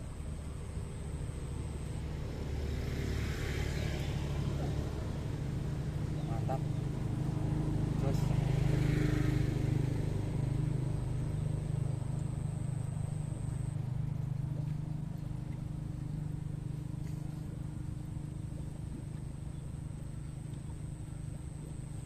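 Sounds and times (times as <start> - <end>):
low engine hum: 0.0 - 22.0
faint high steady tone: 11.3 - 14.0.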